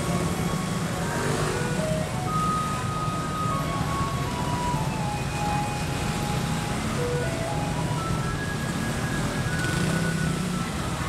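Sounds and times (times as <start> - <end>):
truck engine rumble: 0.0 - 11.0.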